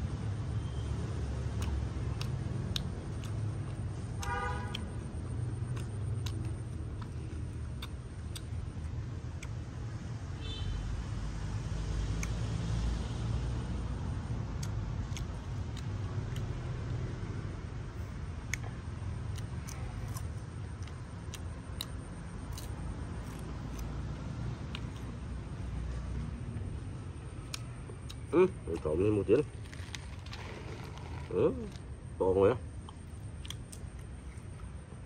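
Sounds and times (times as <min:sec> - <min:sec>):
city road traffic rumble: 0:00.0 - 0:35.0
car horn toot: 0:04.2 - 0:04.8.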